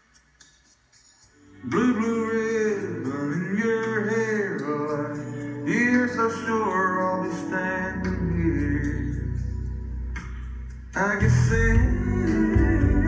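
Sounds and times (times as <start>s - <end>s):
instrumental accompaniment: 0.0s - 13.0s
man singing: 1.6s - 9.4s, 11.0s - 13.0s.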